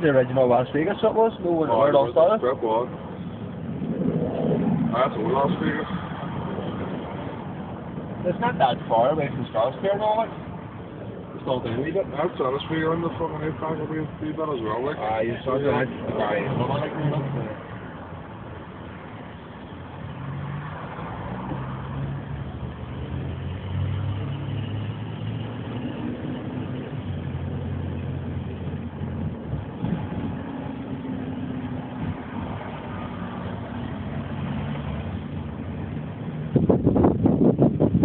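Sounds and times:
car engine hum: 0.0 - 38.0
road noise: 0.0 - 38.0.

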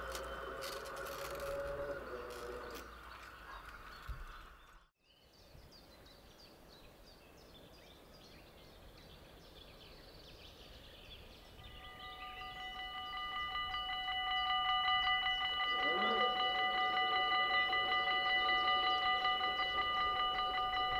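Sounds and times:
railway crossing warning bell: 0.0 - 3.0, 11.6 - 20.9
birds chirping: 0.0 - 20.9.

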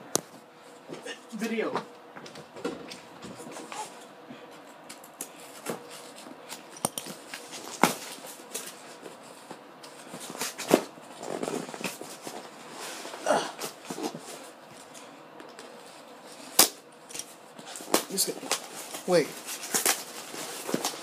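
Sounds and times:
packaging rustling: 17.7 - 21.0.

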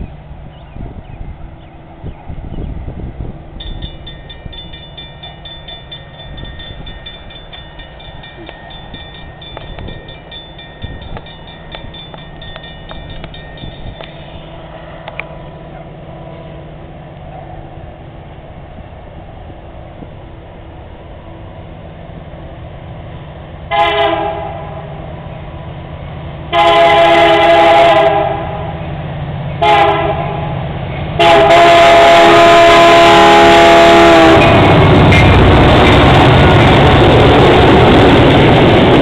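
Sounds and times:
diesel locomotives rumbling: 0.0 - 39.0
crossing bell ringing: 3.6 - 15.2.

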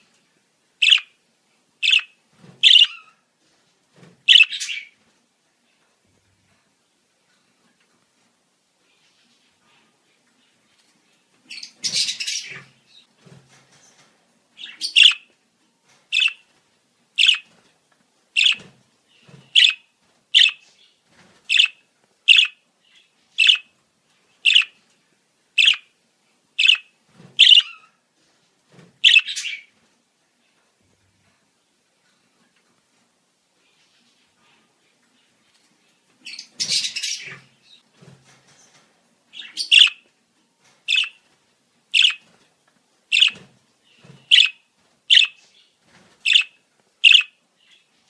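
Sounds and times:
budgerigar sharp chirps: 0.8 - 1.1, 1.8 - 3.0, 4.3 - 4.8, 14.6 - 15.2, 16.2 - 16.4, 17.2 - 17.4, 18.4 - 18.6, 19.6 - 19.8, 20.4 - 20.6, 21.5 - 22.6, 23.4 - 23.6, 24.5 - 24.7, 25.6 - 25.8, 26.6 - 27.8, 39.4 - 40.0, 40.9 - 41.1, 42.0 - 42.2, 43.1 - 43.4, 44.3 - 45.4, 46.3 - 47.4
budgerigar chattering: 4.3 - 4.7, 18.4 - 18.6, 19.6 - 19.8, 21.5 - 22.6, 27.4 - 27.7, 39.5 - 40.0, 40.9 - 41.1, 42.0 - 42.2, 43.1 - 43.4, 44.3 - 45.3, 46.3 - 47.3.

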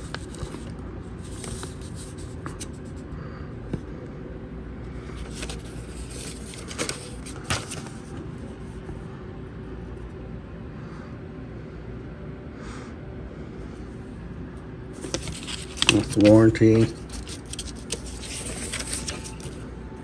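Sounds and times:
paper rustling: 0.0 - 2.9, 5.1 - 8.2, 15.0 - 19.7.

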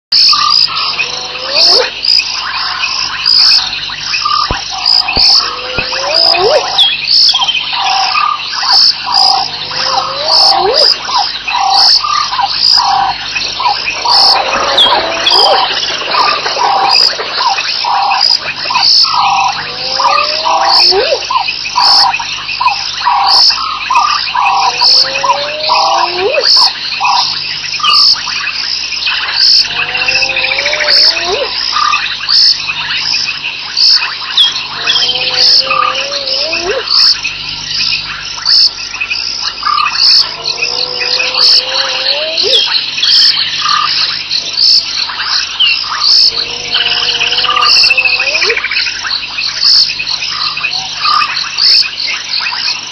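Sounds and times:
hyena whooping: 0.9 - 2.0, 5.2 - 6.9, 9.1 - 11.9, 12.8 - 21.3, 24.4 - 26.8, 29.6 - 31.6, 34.6 - 37.0, 40.1 - 42.8, 46.1 - 48.7
falling whistled bird calls: 9.0 - 21.0.

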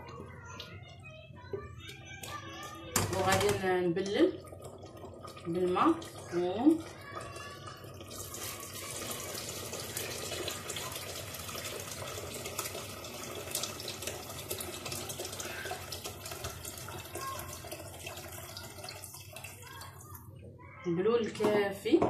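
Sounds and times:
hot water pouring into pot: 2.9 - 20.3.

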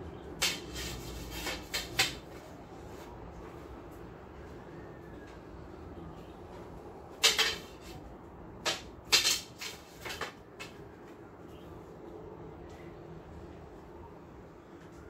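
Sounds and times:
wooden swords clacking: 0.4 - 2.3, 7.1 - 8.0, 8.6 - 10.8.

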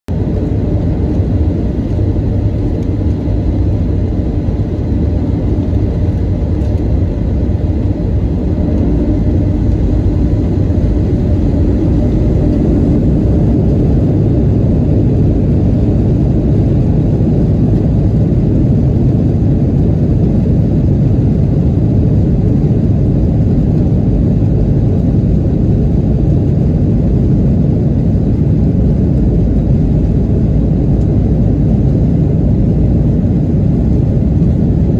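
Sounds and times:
airplane cabin engine rumble: 0.1 - 34.9
faint steady whine: 0.1 - 34.9.

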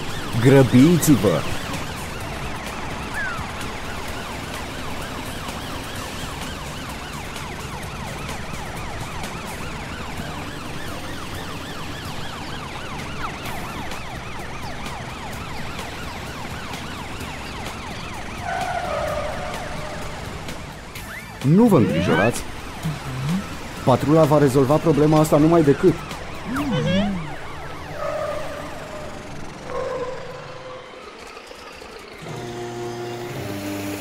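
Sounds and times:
cartoon sirens wailing: 0.0 - 34.0
vehicle engine noise: 0.0 - 34.0.

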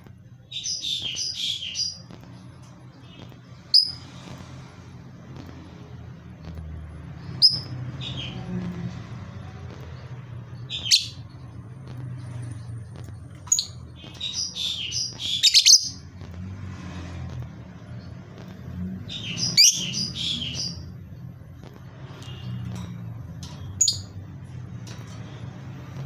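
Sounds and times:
lovebird chirping: 0.5 - 2.1, 3.0 - 4.1, 7.3 - 8.5, 10.6 - 11.4, 12.3 - 16.1, 19.0 - 20.9, 23.8 - 24.2.

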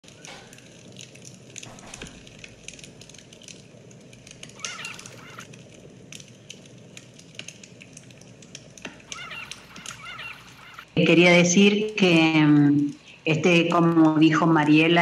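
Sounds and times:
campfire crackling and popping: 0.0 - 11.0
short wavering call: 4.6 - 5.5, 9.1 - 11.0.

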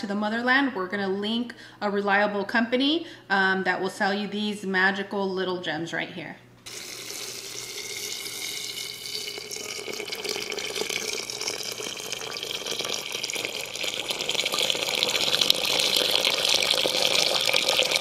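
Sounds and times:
water pouring into clay pot: 6.7 - 18.0.

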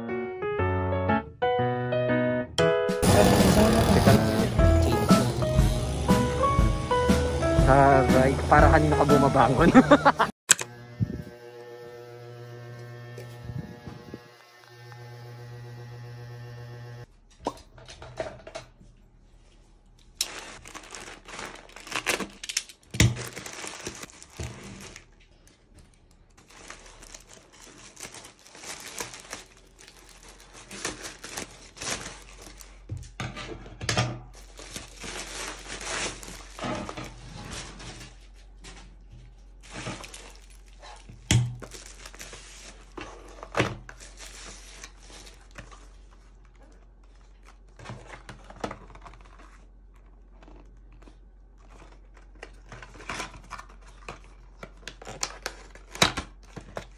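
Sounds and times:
plastic mailer bag tearing: 3.0 - 4.4, 20.2 - 25.5, 26.3 - 32.9, 34.4 - 38.3, 39.6 - 46.2, 47.3 - 56.9
bubble wrap crinkling: 20.0 - 33.2, 34.3 - 56.9.

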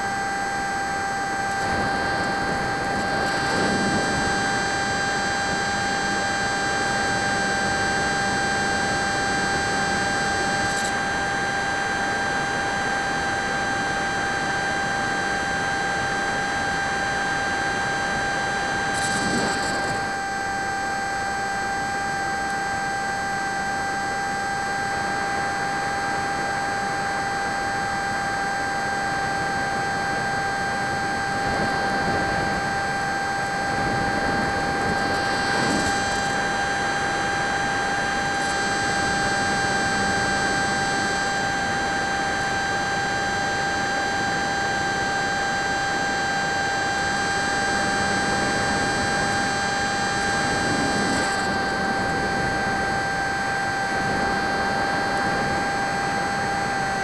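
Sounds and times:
model plane motor whine: 0.0 - 57.0
wind and propeller rush: 0.0 - 57.0.

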